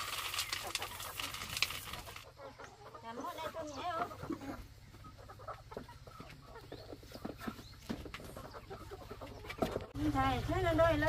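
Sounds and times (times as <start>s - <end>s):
rustling: 0.0s - 2.3s
chickens clucking: 0.0s - 11.0s.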